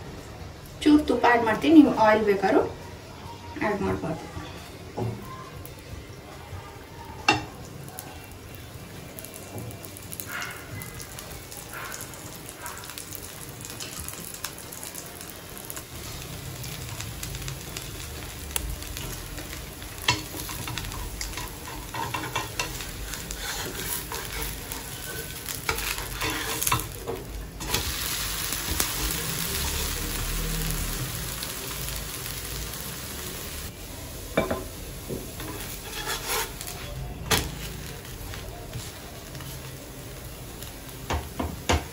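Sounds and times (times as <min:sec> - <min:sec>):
dosa sizzling in a pan: 0:00.0 - 0:41.9
spatula scraping and tapping pan: 0:20.1 - 0:27.8, 0:34.4 - 0:37.6.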